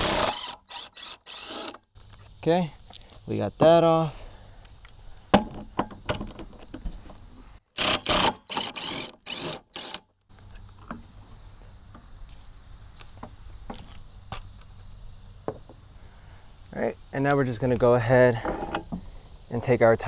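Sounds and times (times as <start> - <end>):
cordless drill bursts: 0.0 - 1.8, 7.8 - 10.0
high insect buzz: 0.0 - 20.0.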